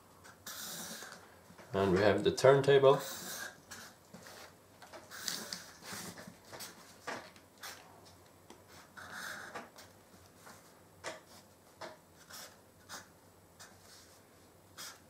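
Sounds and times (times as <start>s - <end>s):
marker scratching on paper: 0.2s - 1.2s, 8.7s - 9.5s, 12.2s - 14.2s, 14.8s - 15.0s.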